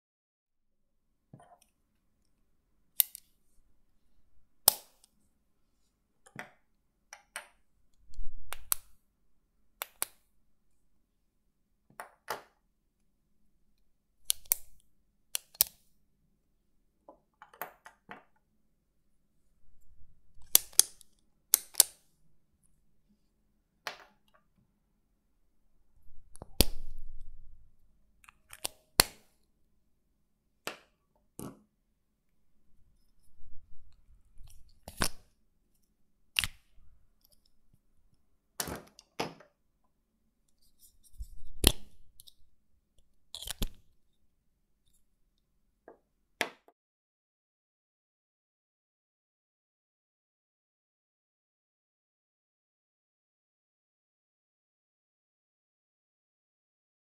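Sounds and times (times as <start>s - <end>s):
ballpoint pens clicking: 14.3s - 14.8s.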